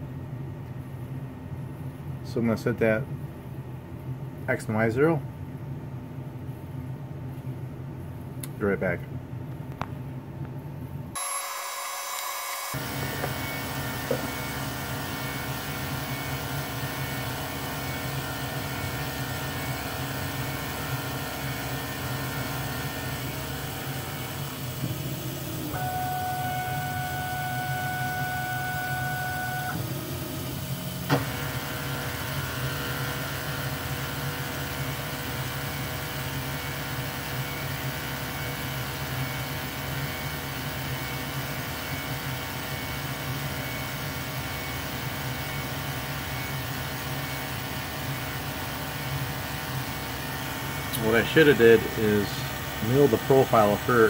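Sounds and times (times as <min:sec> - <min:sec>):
milling machine motor whir: 0:11.2 - 0:54.0.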